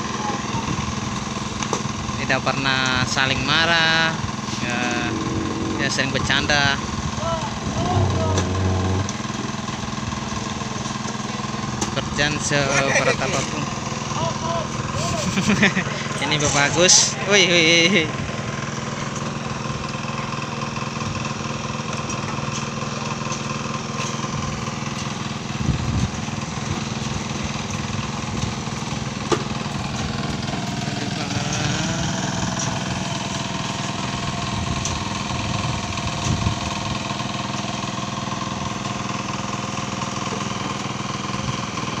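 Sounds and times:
engine running steadily: 2.7s - 9.3s.

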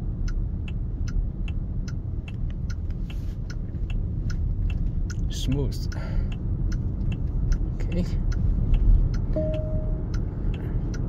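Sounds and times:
road and tyre rumble: 0.0s - 11.0s
turn signal ticking: 0.0s - 11.0s.

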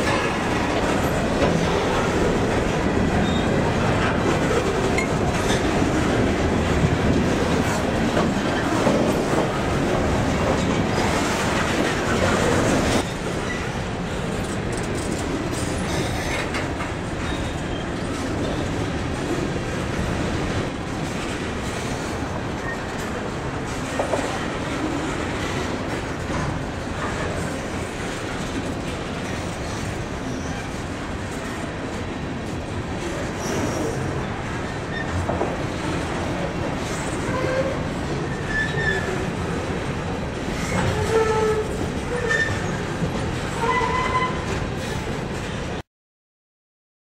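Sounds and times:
steel wheels squealing on rail: 3.1s - 6.2s, 10.4s - 18.8s, 21.6s - 25.7s, 29.4s - 30.9s, 33.1s - 35.4s, 36.8s - 39.7s, 40.5s - 45.6s.

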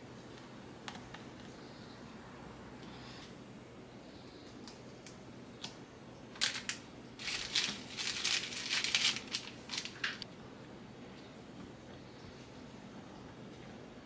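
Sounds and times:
plastic wrapper crinkling: 6.4s - 10.2s.

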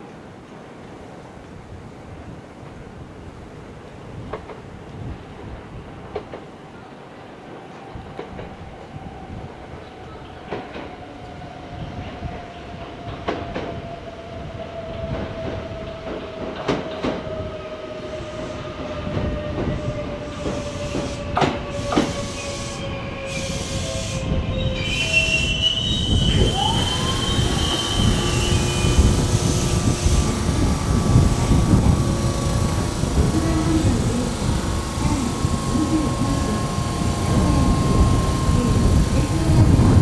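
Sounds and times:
electric train whine: 7.1s - 40.0s
high brake squeal: 20.6s - 39.1s.

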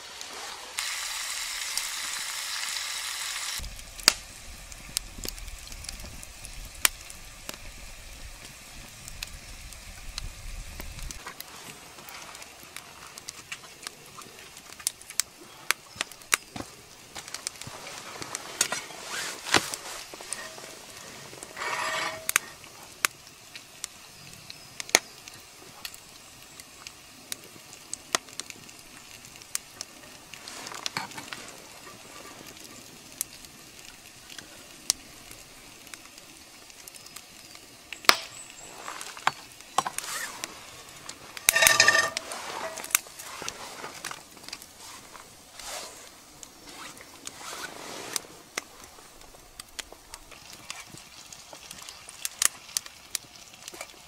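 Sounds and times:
bacon sizzling in a skillet: 0.0s - 54.0s
fat and fire popping: 3.6s - 53.9s
knife scraping a pan: 18.6s - 20.7s, 21.4s - 22.6s, 41.4s - 43.0s.

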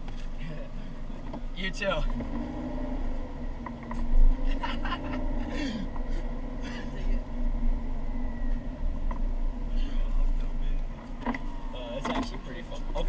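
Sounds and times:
engine idling hum: 0.0s - 13.0s
teenagers laughing: 4.4s - 5.9s.

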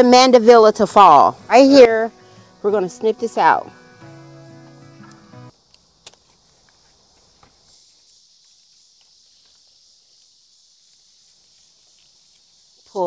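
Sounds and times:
insects calling: 0.0s - 13.0s
wire cutters snipping: 5.0s - 6.8s
handling ticks: 5.0s - 13.0s.

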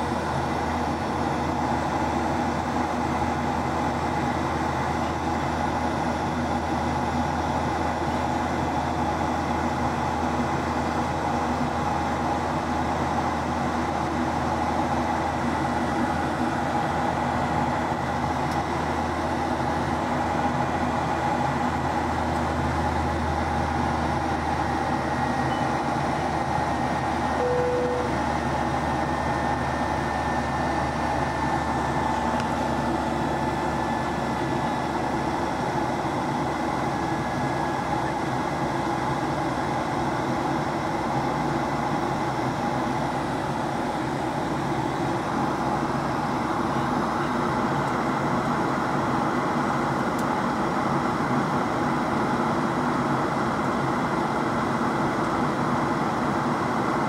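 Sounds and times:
jet engine and airflow drone: 0.0s - 57.0s
faint steady whine: 22.4s - 39.4s.

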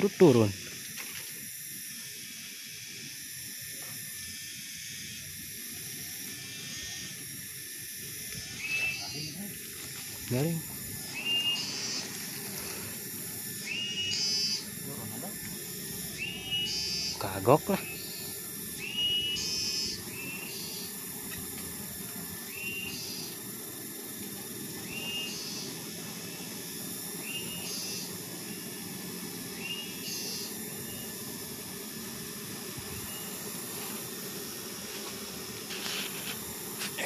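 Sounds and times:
bee colony humming: 0.0s - 37.0s
constant hiss: 0.0s - 37.0s
whistled call: 13.6s - 14.6s.

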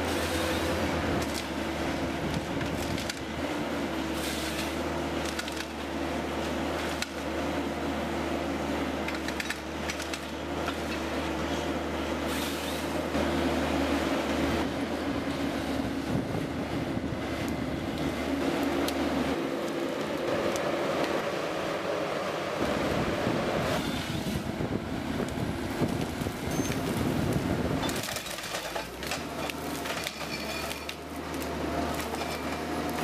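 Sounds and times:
diesel engine and hydraulics running: 0.0s - 33.0s
branches and wood snapping: 0.6s - 3.6s, 4.2s - 7.4s, 9.0s - 11.1s, 17.4s - 21.3s, 25.2s - 33.0s.

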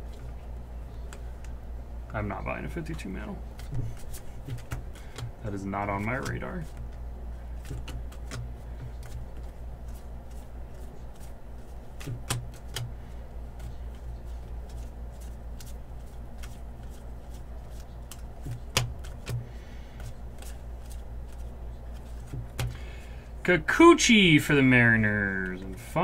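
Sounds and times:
steady low hum: 0.0s - 26.0s
cards being flipped through: 3.5s - 22.8s.

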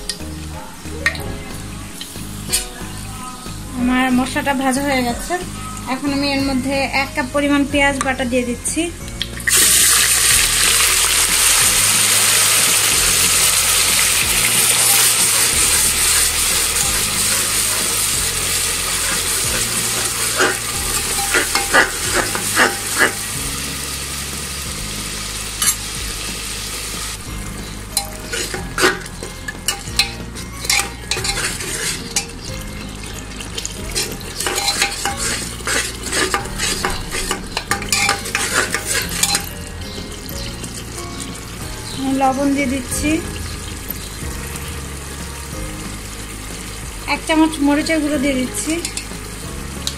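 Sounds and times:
onion paste sizzling in oil: 0.0s - 7.7s, 8.6s - 49.9s
metal spoon scraping a pot: 13.3s - 23.4s, 27.9s - 40.5s.

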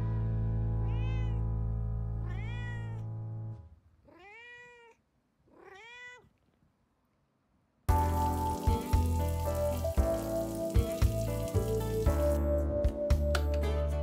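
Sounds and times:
cat meowing: 0.8s - 1.5s, 2.2s - 3.1s, 4.0s - 6.4s.

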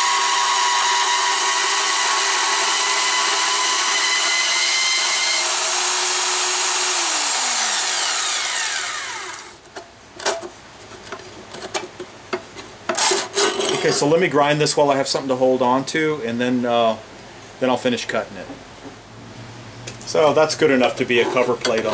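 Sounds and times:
band saw cutting steel: 0.0s - 9.6s
saw winding down: 0.0s - 9.6s.

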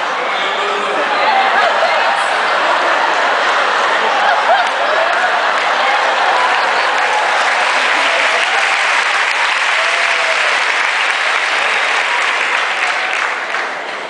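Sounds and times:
audience applauding: 1.0s - 14.0s.

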